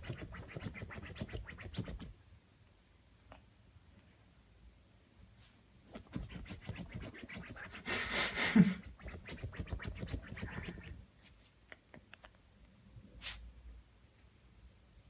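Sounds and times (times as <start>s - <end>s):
puppy scratching fabric pillow: 0.0s - 2.1s, 5.9s - 8.0s, 8.8s - 11.0s.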